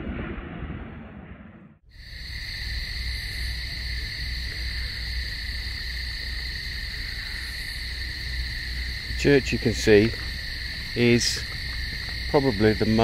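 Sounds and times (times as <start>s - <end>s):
low rumble: 0.0s - 1.8s
cicadas shrilling: 1.9s - 13.0s.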